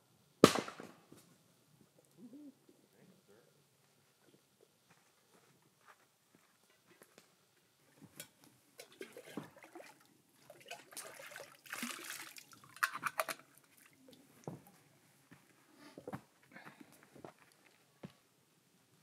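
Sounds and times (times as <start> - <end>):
water gurgling into kettle: 8.8 - 10.0.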